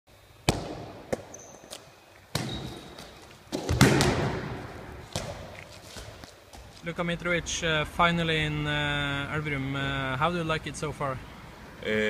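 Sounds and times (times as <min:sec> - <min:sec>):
handballs thudding in echoing hall: 0:00.3 - 0:06.9.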